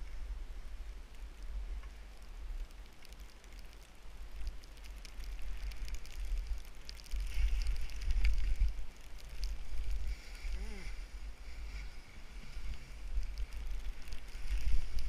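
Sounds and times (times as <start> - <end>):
light crackling: 0.0 - 15.0
wind rumble on microphone: 0.0 - 15.0
skis sliding through powder snow: 7.2 - 15.0.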